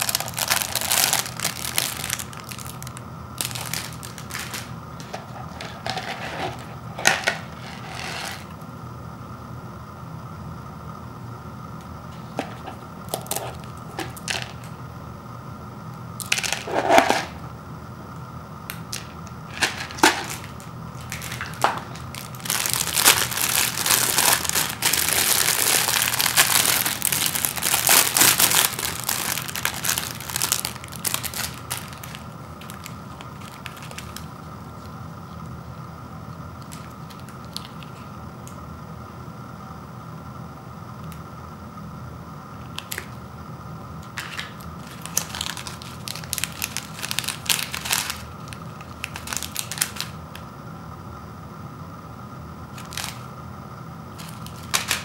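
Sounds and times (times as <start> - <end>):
plastic wrapper crinkling: 0.0 - 8.6, 12.4 - 14.8, 18.9 - 34.3, 36.6 - 38.0, 42.7 - 43.2, 44.0 - 50.4, 52.8 - 53.3, 54.1 - 55.0.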